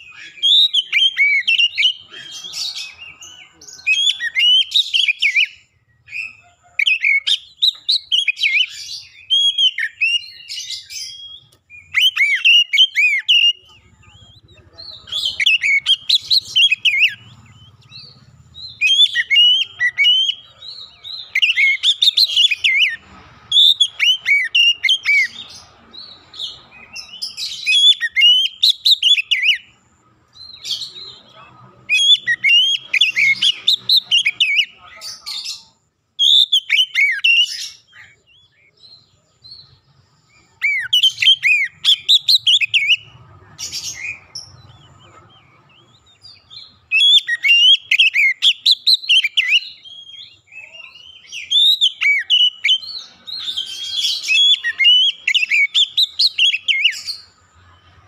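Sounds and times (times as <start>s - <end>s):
bird singing whistled phrases: 0.0s - 25.5s, 26.4s - 29.7s, 31.9s - 34.8s, 36.2s - 38.8s, 40.4s - 43.1s, 46.0s - 57.4s.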